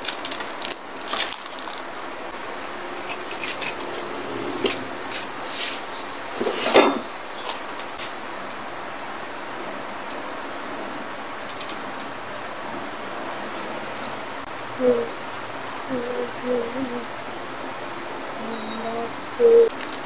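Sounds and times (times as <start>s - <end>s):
paper rustling: 0.0s - 2.0s.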